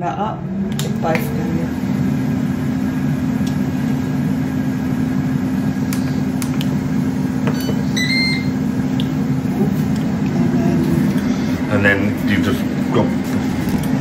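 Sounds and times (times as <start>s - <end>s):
air fryer fan humming: 0.0s - 14.0s
short electronic beep: 7.5s - 8.6s.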